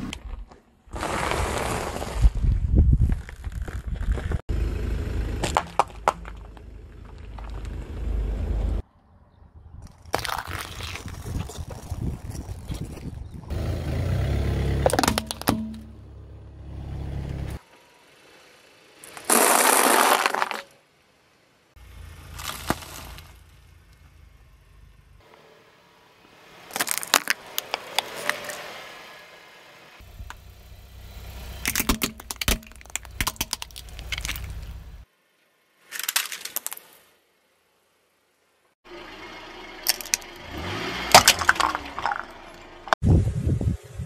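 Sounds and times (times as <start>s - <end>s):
low rumble of car: 0.0s - 35.8s, 37.2s - 44.0s
dry pasta crunching: 10.0s - 12.0s
tyre rolling over asphalt: 19.1s - 20.7s.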